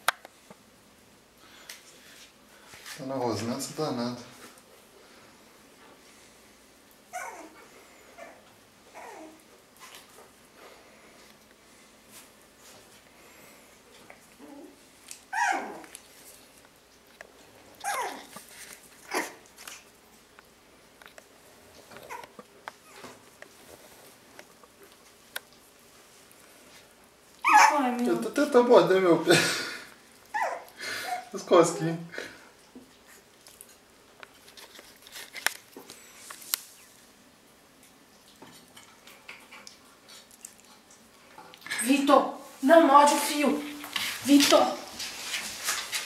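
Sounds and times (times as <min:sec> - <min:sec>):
puppies yelping: 0:07.1 - 0:09.4, 0:14.4 - 0:15.9, 0:17.8 - 0:18.3, 0:19.0 - 0:19.8, 0:27.4 - 0:27.8, 0:30.3 - 0:31.4
puppy chewing clicks and rustles: 0:15.0 - 0:28.4, 0:32.7 - 0:37.0, 0:37.8 - 0:41.8.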